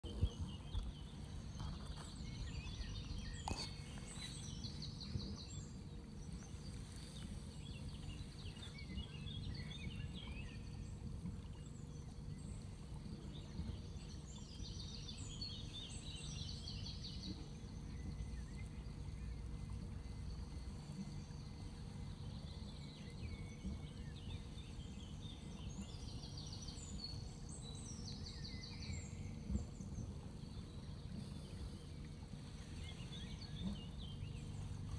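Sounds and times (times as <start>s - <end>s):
boat engine rumbling: 0.0s - 34.9s
songbirds trilling and chirping: 0.0s - 34.9s.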